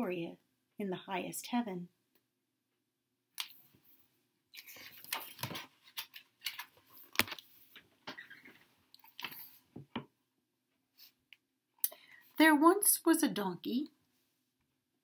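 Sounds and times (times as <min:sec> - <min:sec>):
book pages turning and rustling: 0:04.5 - 0:09.7.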